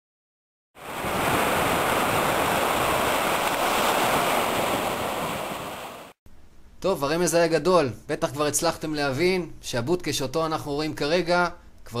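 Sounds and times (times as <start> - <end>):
sea surf washing on shore: 0.8 - 6.2.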